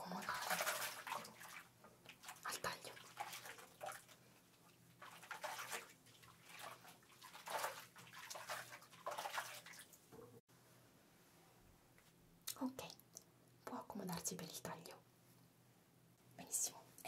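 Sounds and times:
water splashing in basin: 0.0 - 10.2.

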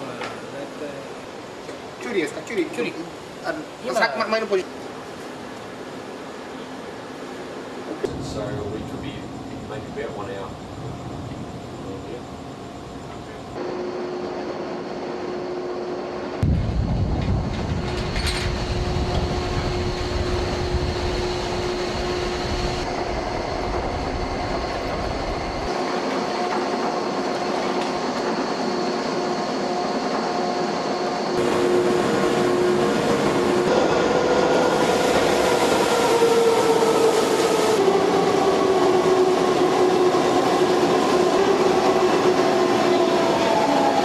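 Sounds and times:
machinery whines: 4.5 - 44.0
machine hum: 6.6 - 43.1
deep rumble: 16.4 - 25.7
machinery din: 16.4 - 25.7.

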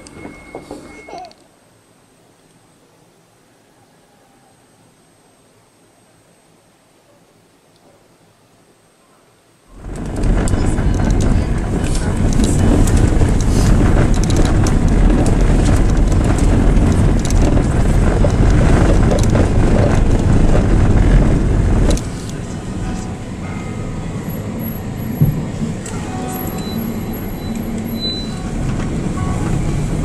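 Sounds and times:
vehicle road noise from inside: 9.7 - 30.0.

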